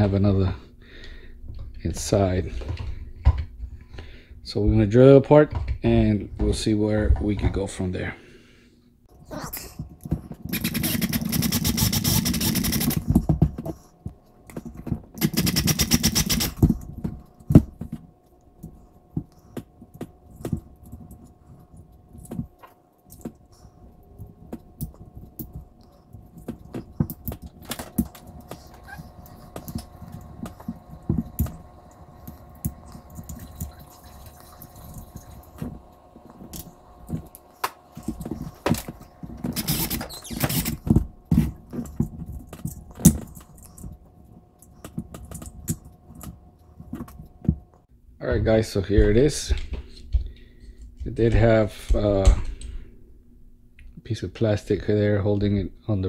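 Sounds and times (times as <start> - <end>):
small clicks and scrapes: 10.0 - 13.9, 14.5 - 18.0, 18.6 - 47.4
electric drill drilling: 10.5 - 13.1, 15.2 - 16.6, 38.5 - 40.9.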